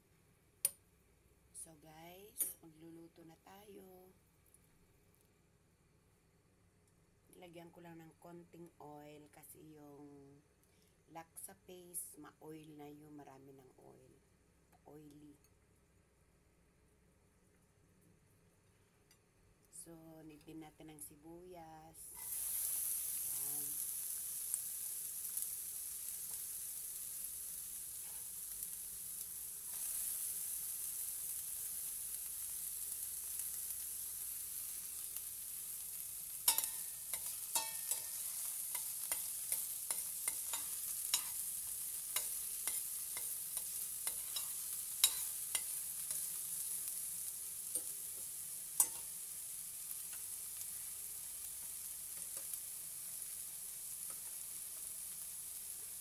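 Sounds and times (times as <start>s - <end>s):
onion sizzling in a pan: 21.0s - 56.0s.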